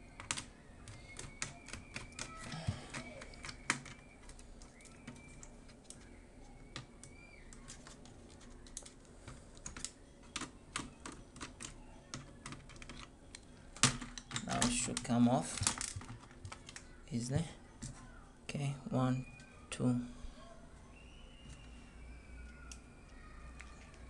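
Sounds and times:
plastic and metal parts clicking: 6.7s - 16.9s.

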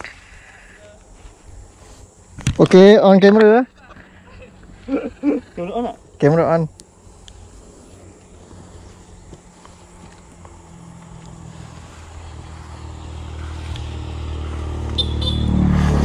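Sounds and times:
motorcycle engine approaching: 7.4s - 16.0s.

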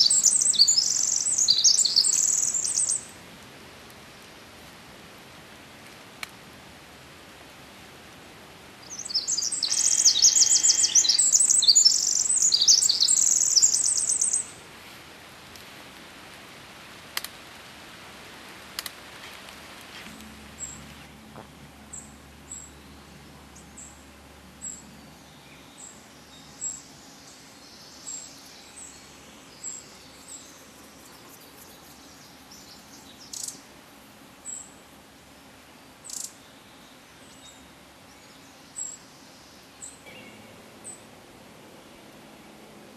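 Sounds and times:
wren singing tumbling trills: 0.0s - 3.1s, 8.8s - 14.6s.

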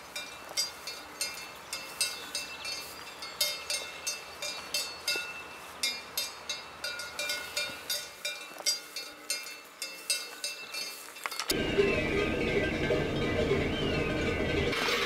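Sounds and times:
cowbells clanking: 0.0s - 15.0s
music: 11.6s - 14.8s.

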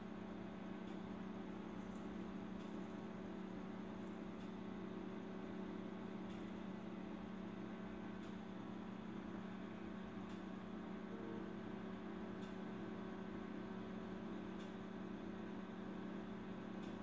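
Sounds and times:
low electrical hum: 0.0s - 17.0s
faint tick: 0.8s - 1.0s.

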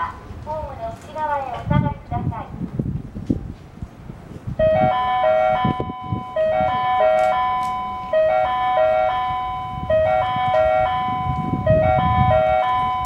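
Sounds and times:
electronic chime melody: 4.6s - 13.0s.

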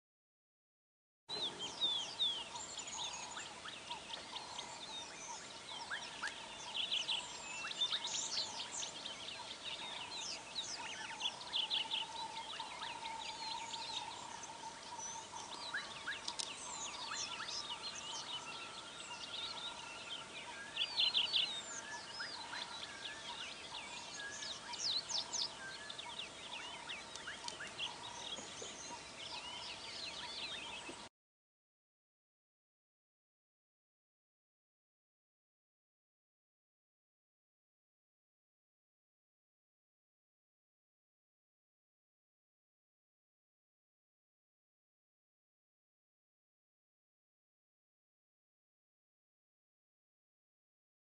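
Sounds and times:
birds chirping and trilling: 1.3s - 31.1s.

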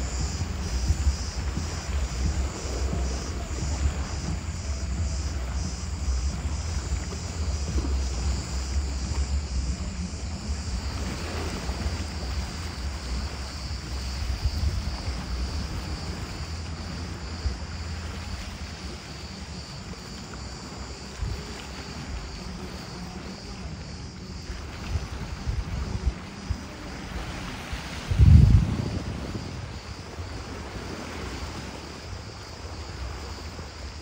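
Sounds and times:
high pulsing buzz: 0.0s - 21.4s
small waves washing on rocks: 0.0s - 34.0s
wind buffeting microphone: 0.0s - 34.0s.

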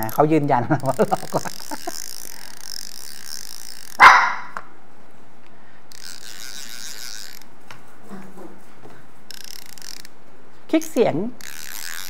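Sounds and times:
fishing reel whirring: 0.0s - 4.6s, 5.7s - 7.6s, 9.2s - 10.2s, 11.4s - 12.0s
dog barking: 4.0s - 4.5s.

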